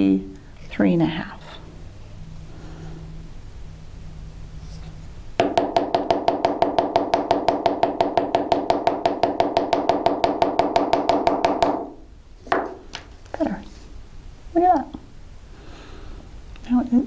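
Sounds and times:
mallet tapping metal punch: 5.4s - 12.0s.

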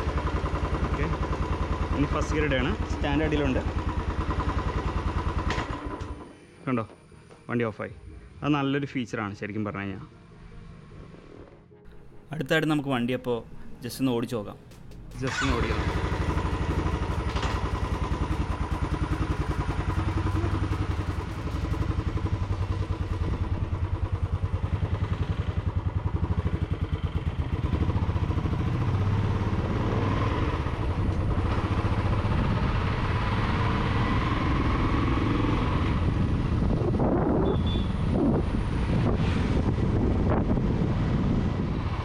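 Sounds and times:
motorcycle engine running: 0.0s - 6.3s, 14.9s - 41.9s.

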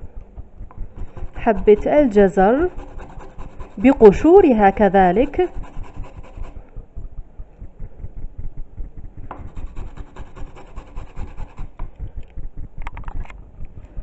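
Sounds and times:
carrot scraping on metal grater: 0.9s - 6.5s, 9.4s - 11.6s.

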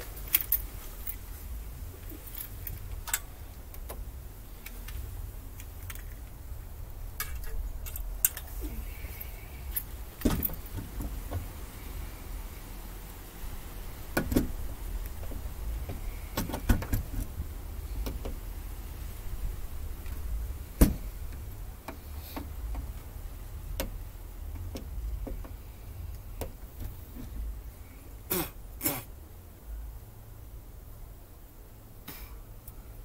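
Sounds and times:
steady low rumble: 0.0s - 33.0s
metal clicks and knocks: 2.2s - 4.0s.

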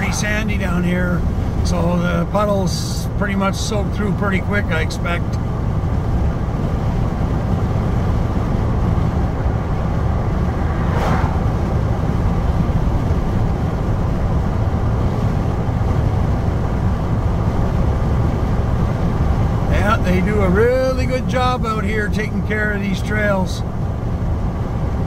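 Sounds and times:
brief whoosh: 0.0s - 1.6s, 9.3s - 12.5s
road and engine rumble: 0.0s - 25.0s.

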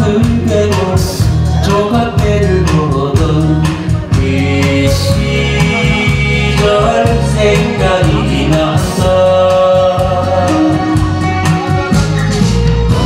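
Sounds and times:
backing track with beat and bass: 0.0s - 13.0s
man singing: 0.0s - 13.0s.

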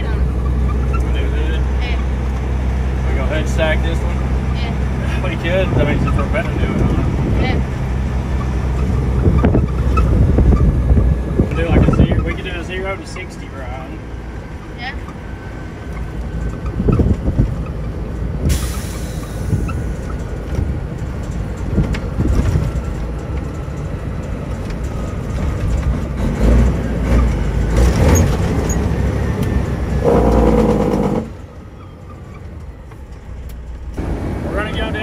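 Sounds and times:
diesel truck engine accelerating: 0.0s - 35.0s.

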